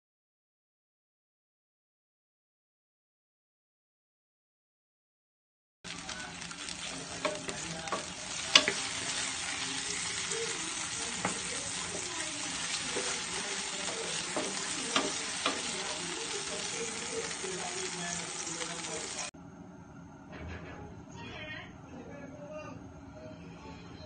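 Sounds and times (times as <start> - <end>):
vegetables sizzling in hot oil: 5.9 - 19.3
spatula clicking on pan: 7.1 - 9.6, 11.1 - 16.0.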